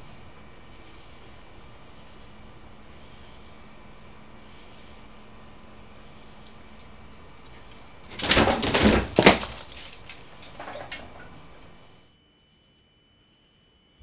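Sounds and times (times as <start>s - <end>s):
clattering and scrabbling: 8.0s - 11.4s.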